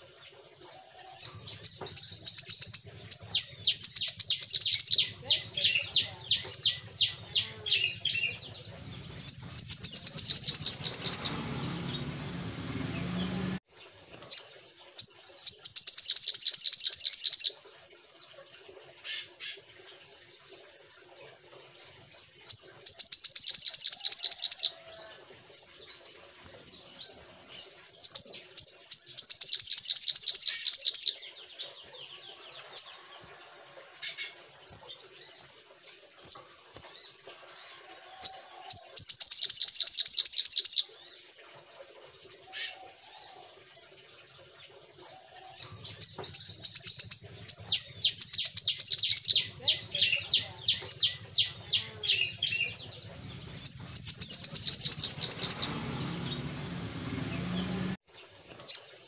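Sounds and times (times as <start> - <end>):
bird chirps: 1.2 - 13.6, 14.3 - 19.6, 22.3 - 24.8, 26.0 - 33.4, 38.8 - 40.9, 45.6 - 58.0
bird high-pitched trills: 1.3 - 12.3, 45.7 - 56.6.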